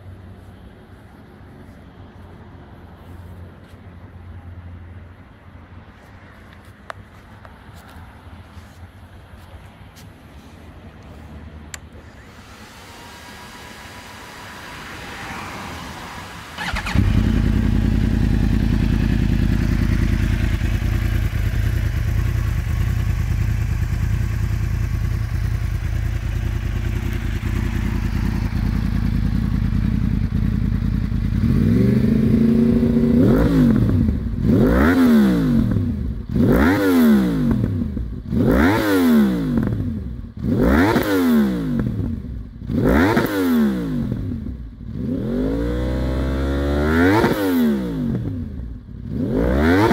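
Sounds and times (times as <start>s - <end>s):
engine revving throttle blips: 11.7s - 49.9s
motorcycle engine starting: 11.7s - 49.9s
motorcycle engine idling: 16.6s - 32.4s.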